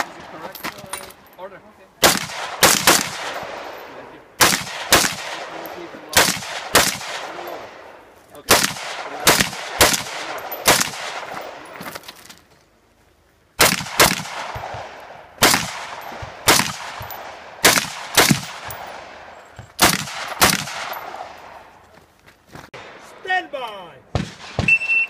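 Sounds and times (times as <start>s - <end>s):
rifle shots with echo: 2.0s - 11.8s, 13.6s - 21.7s, 24.1s - 25.0s.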